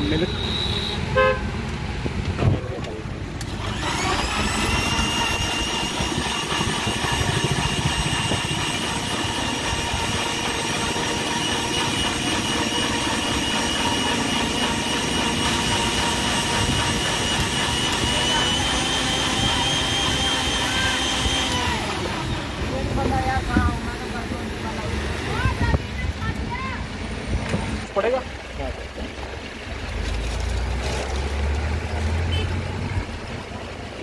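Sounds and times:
mixer grinder motor whining: 3.3s - 26.7s.

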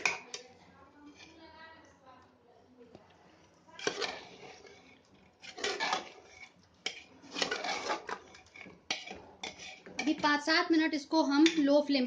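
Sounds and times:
metal ladle scraping a pot: 0.0s - 1.5s, 3.7s - 10.5s, 11.3s - 11.9s.

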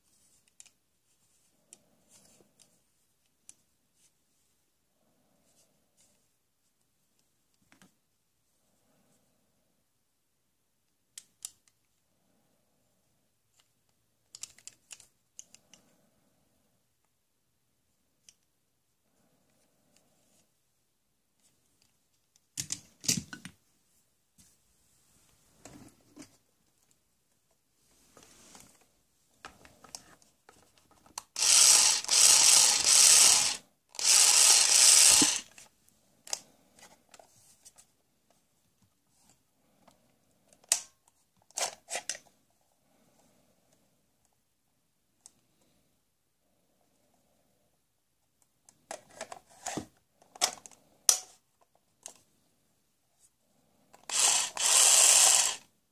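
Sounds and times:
toy drill rattling: 31.2s - 35.7s, 54.0s - 55.7s
plastic toy tools clattering: 31.4s - 35.6s, 54.0s - 55.6s.

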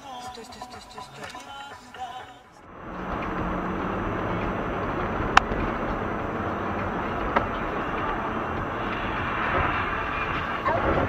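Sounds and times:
car engine and road noise: 2.6s - 11.0s.

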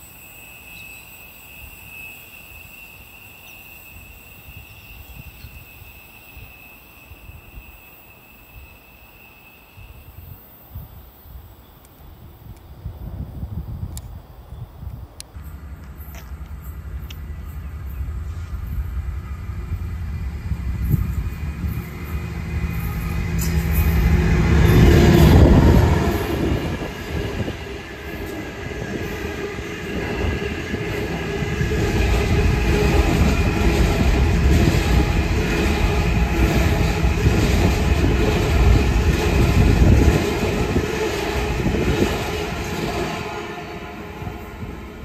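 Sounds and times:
high wheel squeal: 0.0s - 10.4s, 20.7s - 38.2s
freight train rumbling past: 15.1s - 45.0s.

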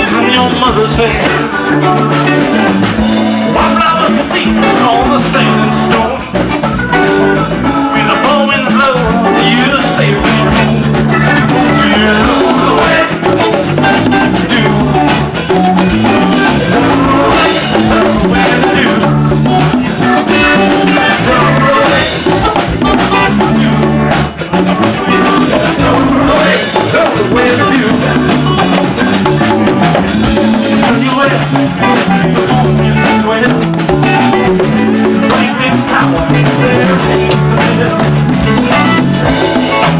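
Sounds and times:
congas: 0.0s - 39.9s
drum kit: 0.0s - 39.9s
live band playing: 0.0s - 39.9s.

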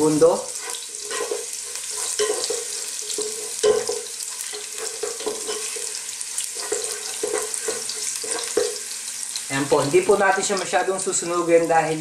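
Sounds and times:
garlic sizzling in hot oil: 0.0s - 12.0s
wooden spoon scraping and knocking pot: 0.5s - 8.9s.

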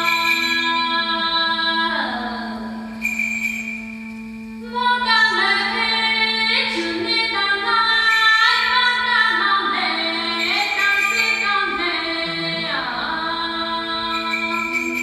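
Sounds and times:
held drone note: 0.0s - 15.0s
person singing in a cave: 4.8s - 11.9s.

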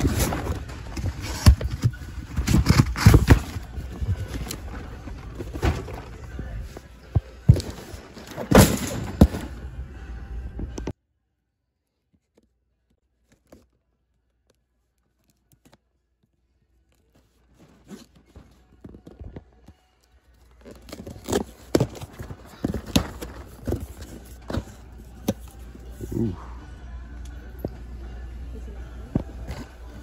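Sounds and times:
cardboard boxes rustling and scraping: 0.0s - 9.6s, 20.5s - 26.2s.

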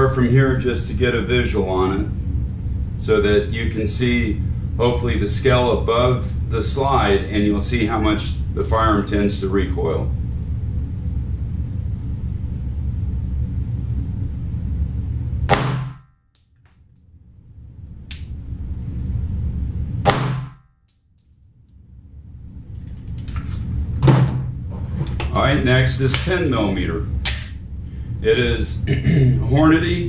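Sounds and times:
low steady hum: 0.0s - 30.0s
pistol shots: 15.5s - 16.0s, 20.1s - 20.6s.

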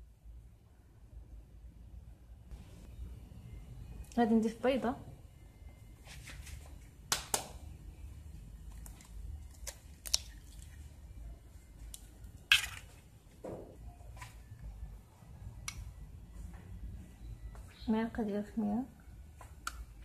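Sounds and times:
faint low hum: 0.0s - 20.0s
eggshell cracking clicks and taps: 8.8s - 10.6s.

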